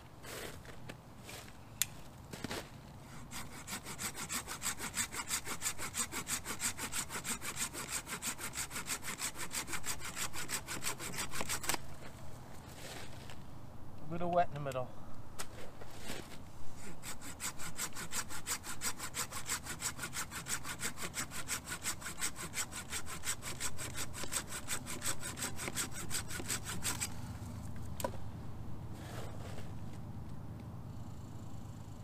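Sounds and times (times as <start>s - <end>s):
hand saw cutting log: 3.1s - 12.0s, 16.8s - 27.2s.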